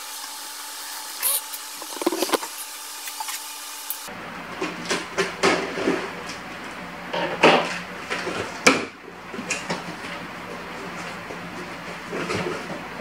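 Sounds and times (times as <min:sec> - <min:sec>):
cardboard rustling and scraping: 0:01.8 - 0:02.6.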